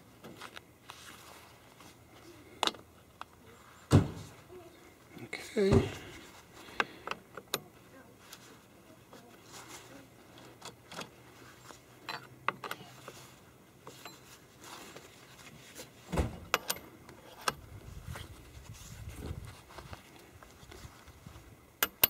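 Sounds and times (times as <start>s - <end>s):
metal tool clicks and taps: 16.5s - 16.8s, 21.8s - 22.0s.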